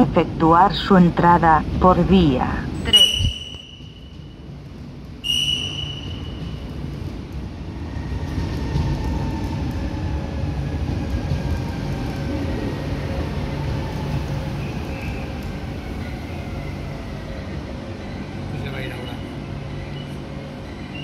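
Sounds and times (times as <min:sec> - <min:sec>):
train wheels rumbling on rails: 0:00.0 - 0:21.0
high-pitched beep: 0:02.9 - 0:04.0.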